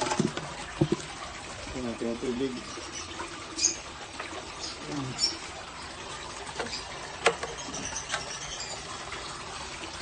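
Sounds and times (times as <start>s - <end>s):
bucket handling knocks: 0.0s - 1.1s, 6.5s - 7.6s.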